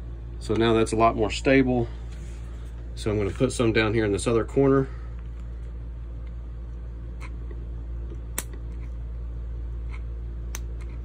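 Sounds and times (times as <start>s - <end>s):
air conditioner humming: 0.0s - 11.0s.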